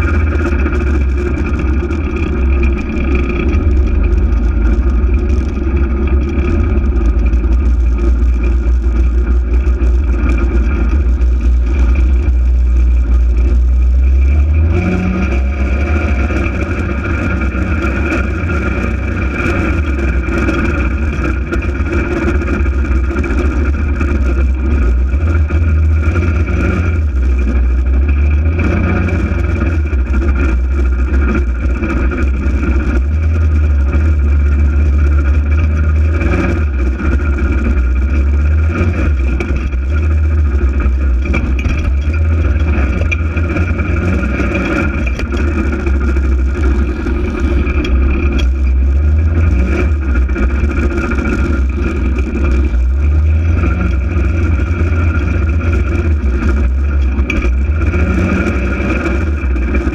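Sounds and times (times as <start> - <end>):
vehicle engine revving: 0.0 - 59.9.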